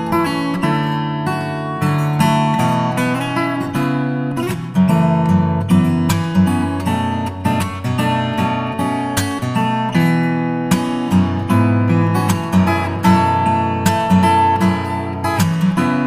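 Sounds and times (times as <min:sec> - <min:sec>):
acoustic guitar music: 0:00.0 - 0:16.0.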